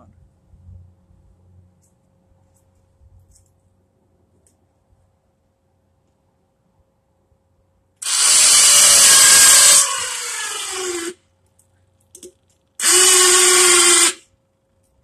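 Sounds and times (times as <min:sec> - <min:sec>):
electric winch motor running: 0:08.0 - 0:11.2, 0:12.8 - 0:14.3.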